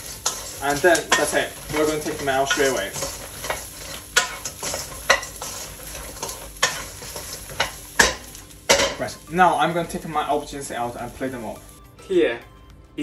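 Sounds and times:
wooden spatula scraping a wok: 0.0 - 8.4
light sizzle: 0.0 - 11.8.

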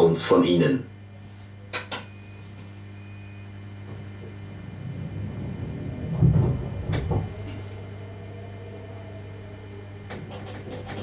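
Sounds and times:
train electrical hum: 0.0 - 11.0
low rumble: 3.0 - 11.0.

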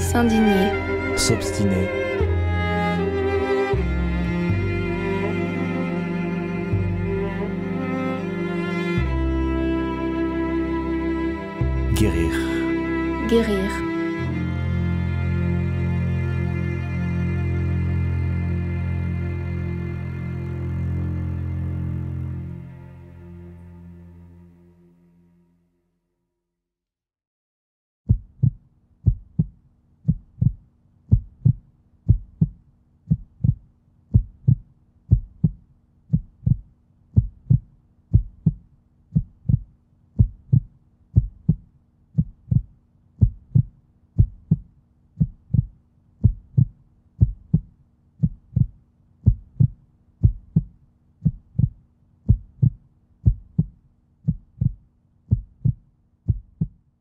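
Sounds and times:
heartbeat thumps: 28.1 - 56.8.

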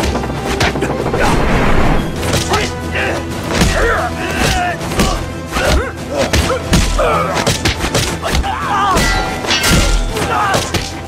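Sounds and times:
dramatic action music: 0.0 - 11.0
fighters grunting and yelling: 2.3 - 11.0.

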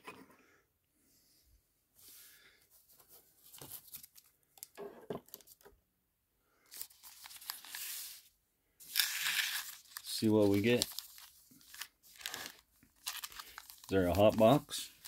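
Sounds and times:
wrappers crinkling and tearing: 6.7 - 8.1, 8.8 - 15.0.

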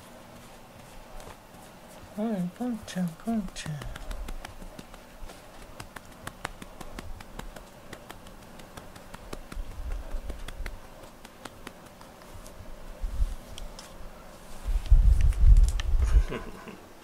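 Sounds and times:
hand patting cat fur: 0.3 - 13.8.

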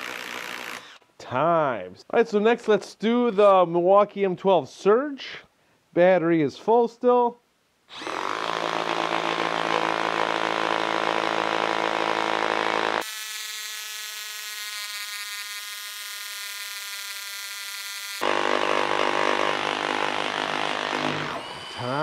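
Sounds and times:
impact driver buzzing drone: 7.9 - 22.0.

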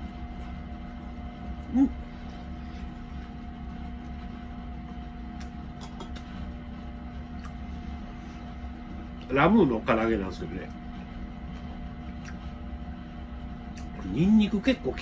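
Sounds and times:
low room hum: 0.0 - 15.0
short voiced mm: 1.6 - 2.0.

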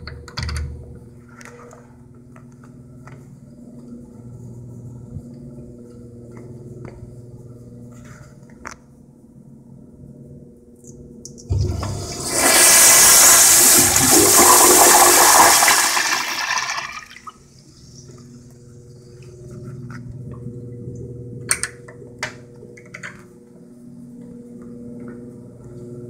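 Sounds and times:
toilet flushing water rush: 11.5 - 17.4.

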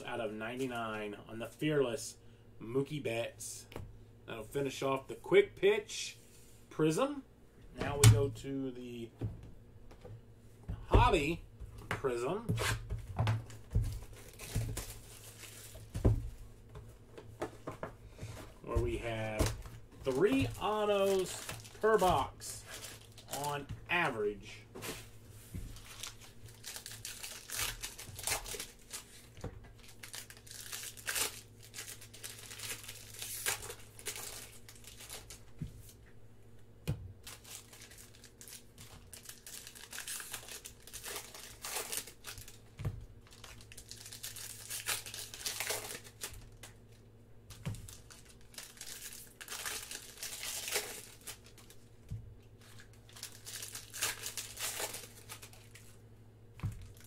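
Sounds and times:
foil wrappers tearing and crinkling: 13.5 - 15.9, 19.0 - 23.7, 25.7 - 35.5, 37.2 - 42.6, 43.2 - 46.8, 47.6 - 51.9, 52.6 - 55.9.

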